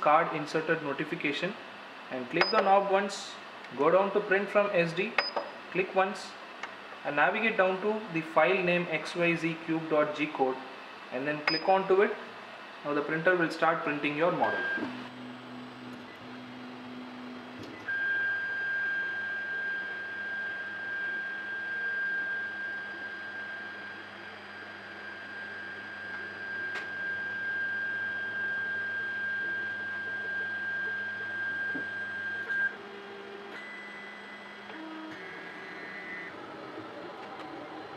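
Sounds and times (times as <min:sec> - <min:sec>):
stepper motor whine: 0:14.4 - 0:37.9.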